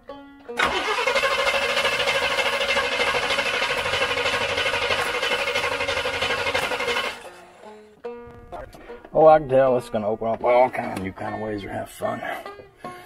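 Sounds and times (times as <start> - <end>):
engine cranking on starter: 0.6 - 7.5.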